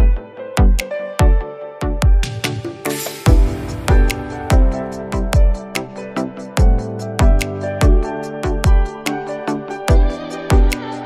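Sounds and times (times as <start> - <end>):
deep kick drum: 3.3 - 5.7, 6.6 - 8.9.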